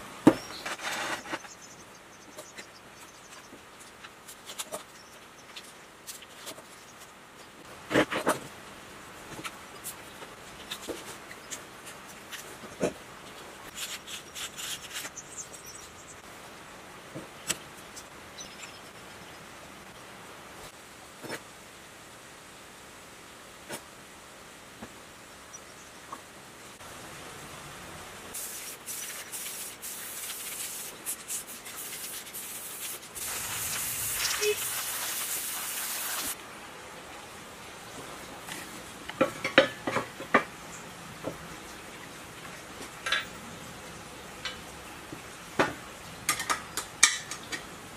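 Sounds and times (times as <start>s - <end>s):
spray paint cans hissing: 28.3s - 36.4s.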